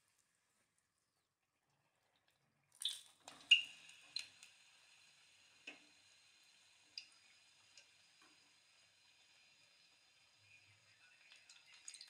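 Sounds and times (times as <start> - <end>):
oil sizzling: 2.8 - 12.0.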